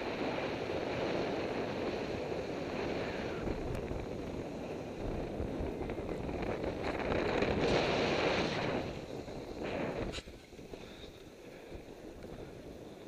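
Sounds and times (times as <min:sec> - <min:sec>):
wind rushing over microphone: 0:00.0 - 0:13.0
skis hissing over snow: 0:07.2 - 0:11.7.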